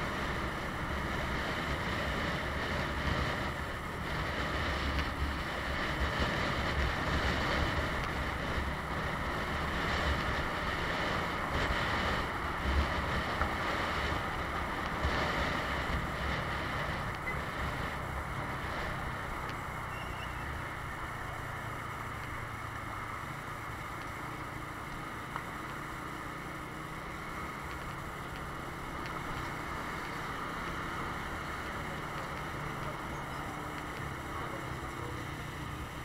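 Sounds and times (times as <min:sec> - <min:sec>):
wind rushing over microphone: 0:00.0 - 0:19.7
steady engine hum: 0:00.0 - 0:36.0.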